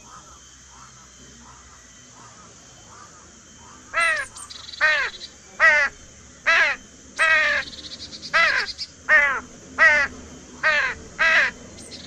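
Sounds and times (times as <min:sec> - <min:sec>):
crow cawing: 0:00.0 - 0:05.9, 0:06.5 - 0:07.8, 0:08.4 - 0:11.6.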